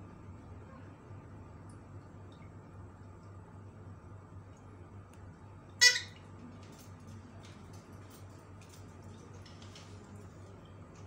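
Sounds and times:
parakeet squawk: 5.8s - 6.2s.

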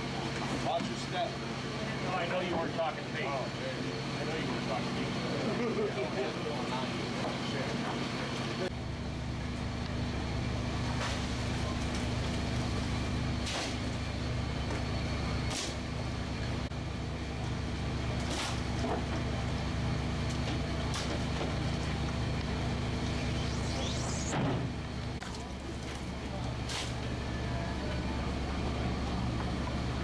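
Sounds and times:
boat machinery hum: 5.2s - 30.0s
short hissing swish: 23.1s - 24.4s.

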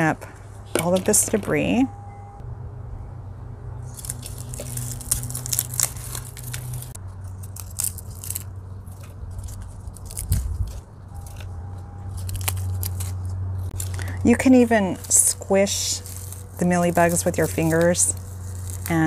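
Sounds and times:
steady low hum: 0.0s - 19.0s
dry leaves crackling: 3.6s - 19.0s.

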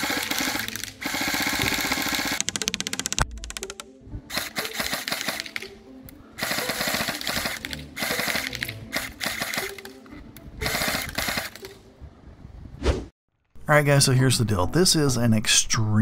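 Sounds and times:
airsoft rifle firing bursts: 0.0s - 3.2s, 4.3s - 5.7s, 6.4s - 10.0s, 10.6s - 11.7s
background music: 0.0s - 12.8s.

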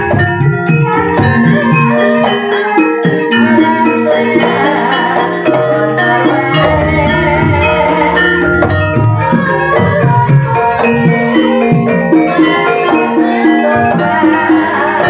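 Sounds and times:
gamelan ensemble playing: 0.0s - 15.0s
hand drum strokes: 6.4s - 10.6s.

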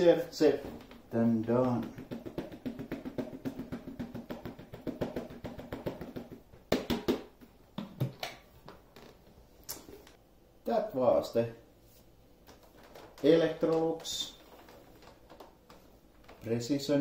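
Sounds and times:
plastic knocks: 0.7s - 8.8s.

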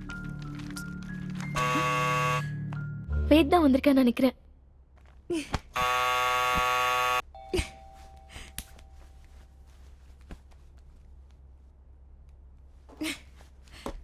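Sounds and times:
electric doorbell buzzer: 1.6s - 2.5s, 5.8s - 7.2s.

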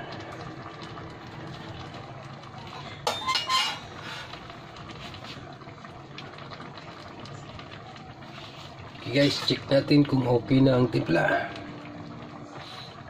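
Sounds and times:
metal spoon clanking in steel bowl: 3.1s - 3.9s.

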